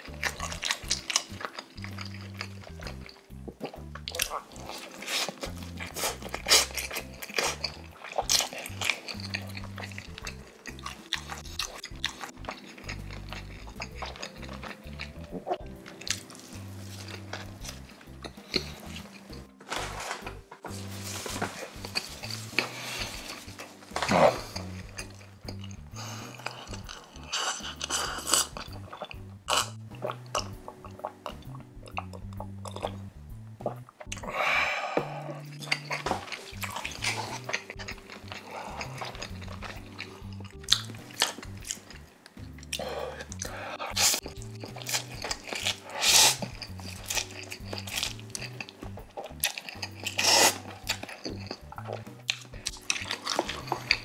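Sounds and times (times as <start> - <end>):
background music with bass line: 0.0 - 54.0
close chewing: 0.0 - 54.0
loud noodle slurps: 4.6 - 9.2, 22.0 - 24.8, 26.1 - 28.7, 43.0 - 48.2, 49.5 - 50.7
drinking and gulping: 21.4 - 54.0.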